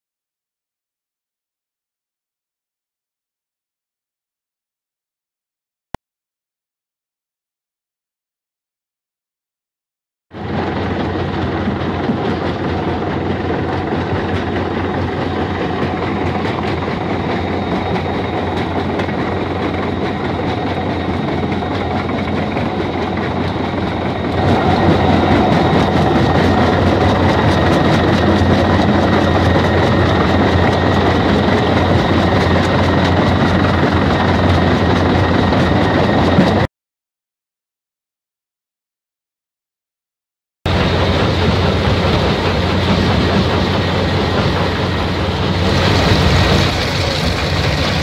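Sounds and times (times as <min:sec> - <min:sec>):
heavy machine drone: 0:10.4 - 0:36.7, 0:40.7 - 0:48.0.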